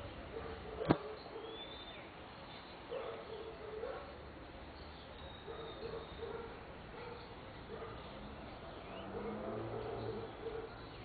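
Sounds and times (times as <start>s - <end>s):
sharp click: 0.8s - 1.0s.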